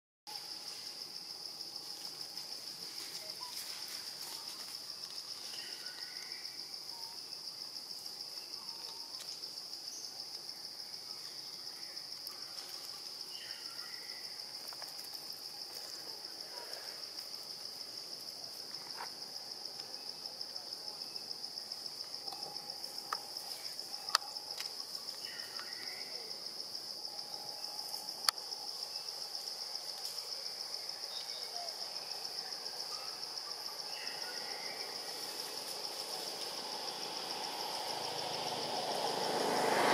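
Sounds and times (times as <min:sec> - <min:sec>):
high-pitched insect chorus: 0:00.3 - 0:39.9.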